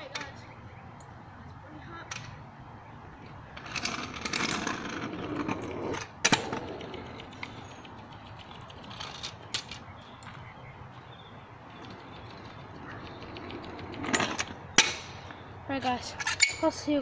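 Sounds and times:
scooter wheels rolling on asphalt: 3.0 - 17.0
scooter landing clack: 6.0 - 7.2.

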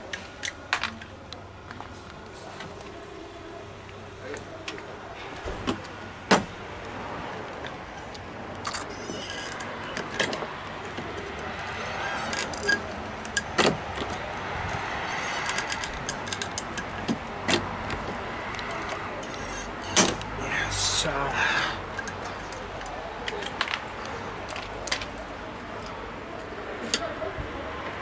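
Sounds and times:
low background noise: 0.0 - 28.0
sharp clicks and knocks: 12.3 - 20.3.

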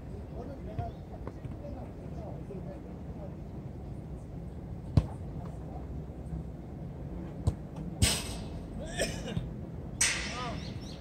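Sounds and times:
ball kick thuds: 4.9 - 5.2, 7.4 - 8.4.

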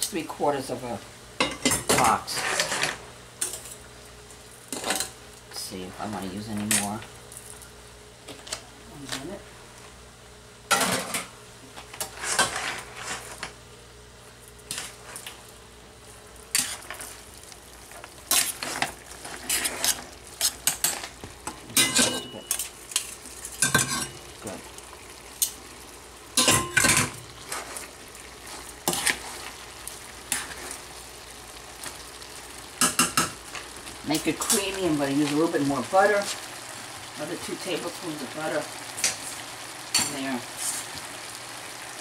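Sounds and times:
food sizzling in a skillet: 0.0 - 9.5, 10.7 - 42.0.

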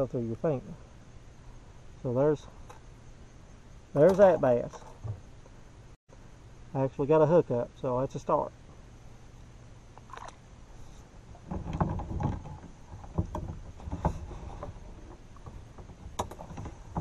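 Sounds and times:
rumbling and knocks on kayak: 4.0 - 5.4, 11.3 - 17.0.

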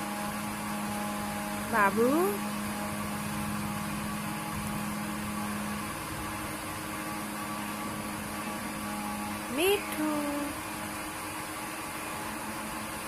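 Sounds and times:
mechanical hum: 0.0 - 13.0.

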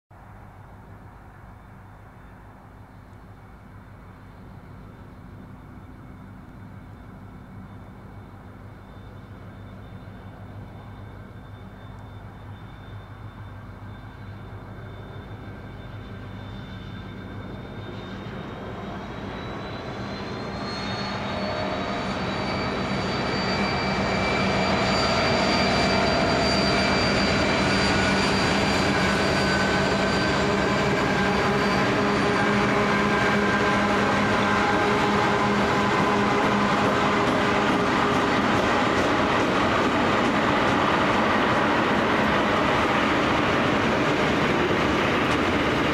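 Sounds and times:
diesel locomotive engines droning: 0.2 - 45.9.

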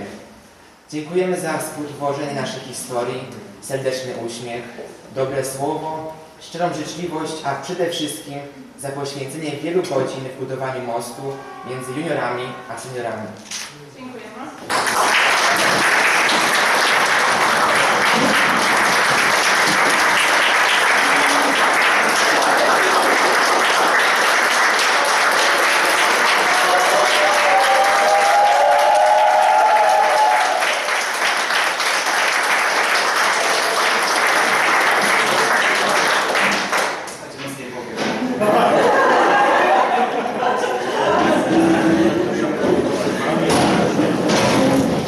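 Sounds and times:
audience applauding: 14.6 - 37.2.

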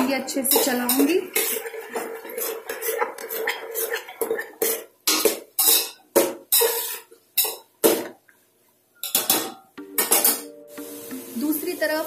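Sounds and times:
spoon scraping metal pot: 0.4 - 7.6.

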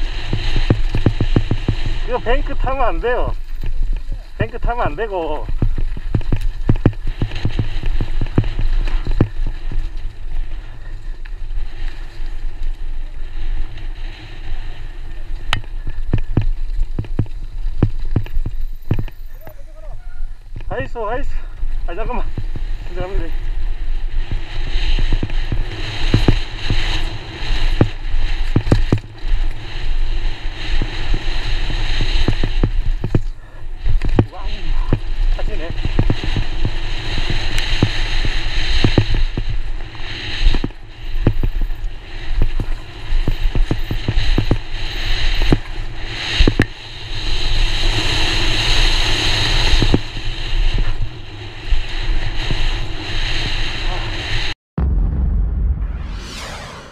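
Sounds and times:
bike knocks and rattles: 0.0 - 2.1, 5.5 - 10.2, 15.6 - 19.2, 27.7 - 29.2
bike knocking and rattling: 0.0 - 4.6, 5.5 - 13.7, 15.0 - 19.6, 21.5 - 46.8
wind rushing over microphone: 0.0 - 19.2, 19.9 - 56.9.

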